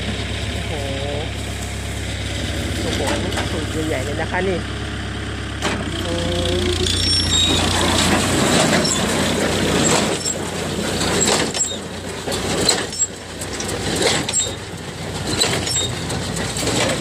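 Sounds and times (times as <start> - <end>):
baler mechanical clatter: 5.6 - 17.0.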